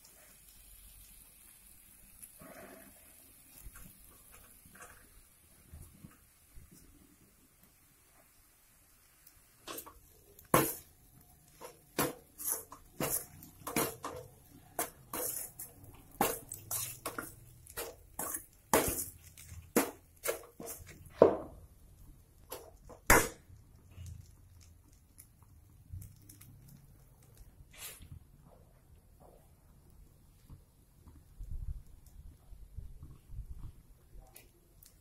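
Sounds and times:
spoon scraping metal pan: 0:11.5 - 0:19.2.

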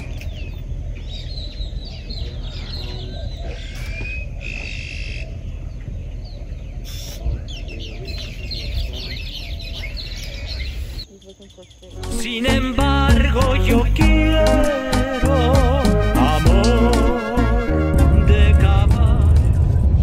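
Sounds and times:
birds chirping and whistling: 0:00.0 - 0:12.0
low rumble: 0:15.7 - 0:20.0.

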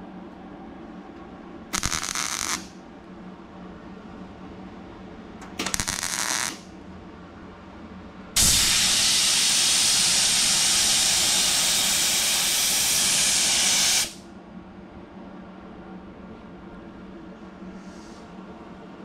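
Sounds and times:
welding crackle: 0:01.8 - 0:02.7, 0:05.6 - 0:06.6
compressed air blow gun hissing: 0:08.4 - 0:14.2.

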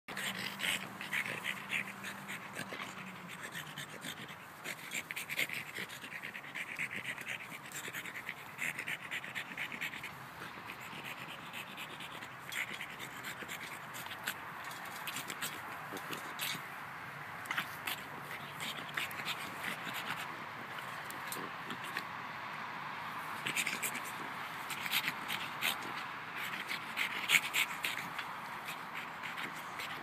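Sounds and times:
dog panting: 0:00.1 - 0:22.2, 0:23.4 - 0:30.0.

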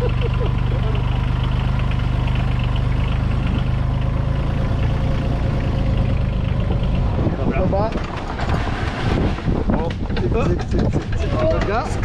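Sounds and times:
motorcycle engine running: 0:00.0 - 0:07.9.

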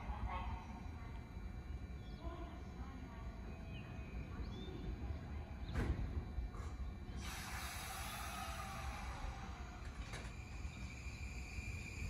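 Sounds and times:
electric train humming: 0:00.0 - 0:12.0
small birds chirping: 0:01.6 - 0:05.8
steady hiss: 0:06.6 - 0:12.0.

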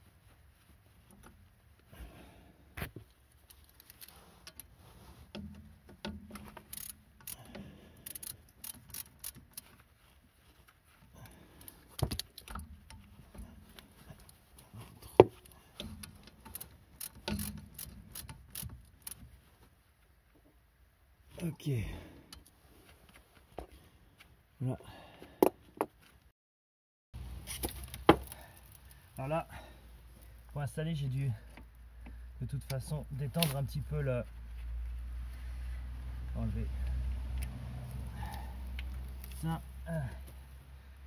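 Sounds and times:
wrench and metal parts clinking: 0:05.5 - 0:09.7, 0:15.4 - 0:19.2.

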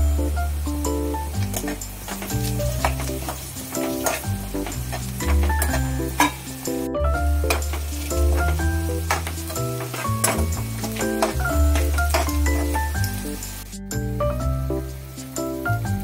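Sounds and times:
background music with beat: 0:00.0 - 0:16.0
onions sizzling in oil: 0:00.0 - 0:16.0
spatula scraping pan: 0:01.5 - 0:06.6, 0:07.4 - 0:13.0.

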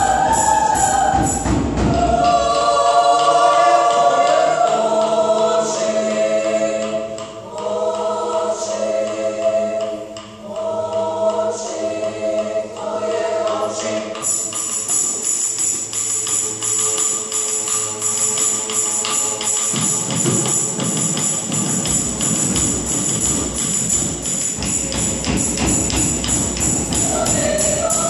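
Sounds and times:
large drum beats: 0:00.0 - 0:04.9, 0:19.6 - 0:28.0
tambourine jingling: 0:00.0 - 0:06.1, 0:13.5 - 0:28.0
choir singing: 0:00.0 - 0:28.0.

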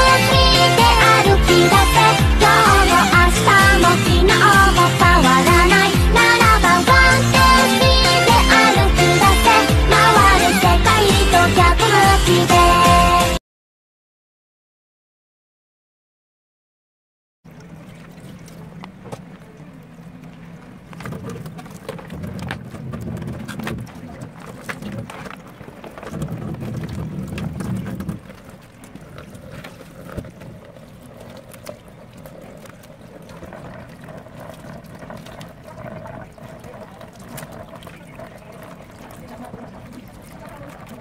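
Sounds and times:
tap water running and splashing: 0:17.5 - 0:41.0.

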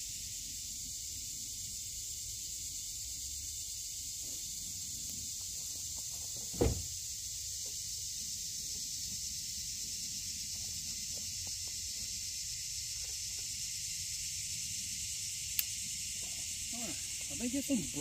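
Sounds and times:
insect chorus hissing: 0:00.0 - 0:18.0
low thump: 0:06.5 - 0:06.9.

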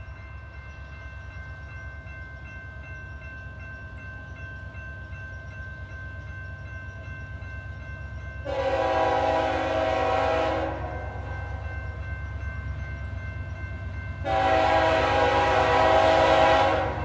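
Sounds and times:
diesel freight train rumble: 0:00.0 - 0:17.0
locomotive air horn blast: 0:08.5 - 0:11.6, 0:14.2 - 0:17.0.

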